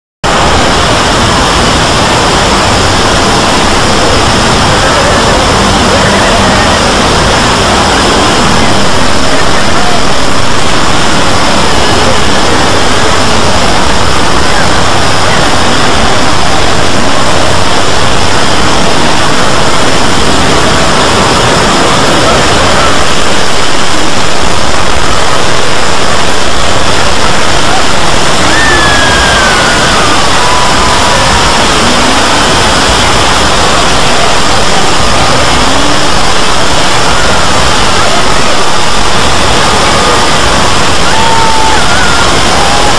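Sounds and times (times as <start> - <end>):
dense noise-like din: 0.2 - 42.9.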